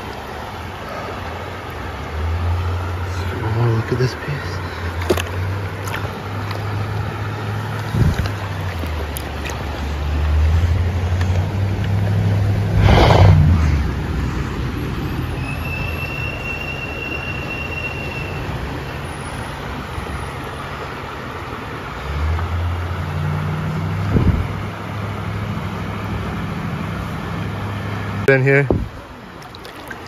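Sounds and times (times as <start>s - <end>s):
river water running: 0.0s - 30.0s
fish splash: 4.6s - 12.2s, 29.2s - 30.0s
low rumble: 12.4s - 15.1s
thin whistle-like tone: 15.3s - 18.5s.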